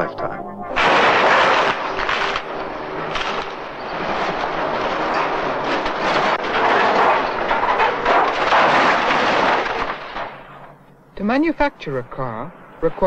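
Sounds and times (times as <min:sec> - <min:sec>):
car bodies crushed and clanging: 0:00.8 - 0:11.1.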